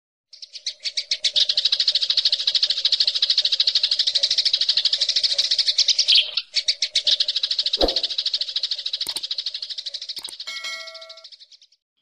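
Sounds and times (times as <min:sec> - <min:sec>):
bird rapid shrill trill: 0:07.6 - 0:09.6, 0:10.2 - 0:11.3.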